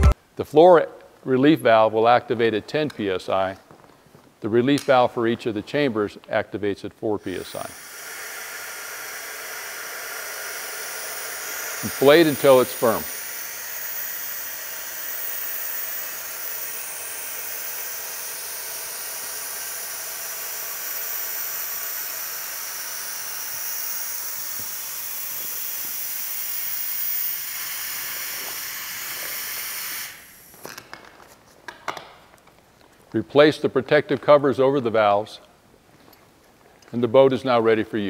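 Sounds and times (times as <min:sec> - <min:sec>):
compressed air hissing: 0:07.2 - 0:30.8.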